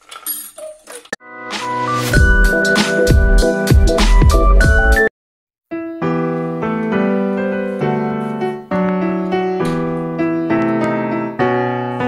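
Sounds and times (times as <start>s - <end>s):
piano-like keyboard music: 1.2s - 5.1s, 5.7s - 12.0s.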